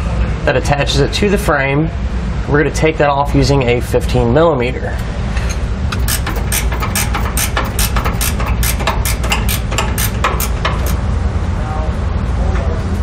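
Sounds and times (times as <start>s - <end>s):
ratchet wrench clicking: 5.9s - 11.0s.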